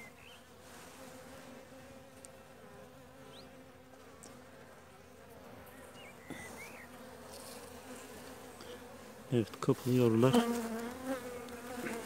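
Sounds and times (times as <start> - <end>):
honeybees humming: 0.0 - 12.0.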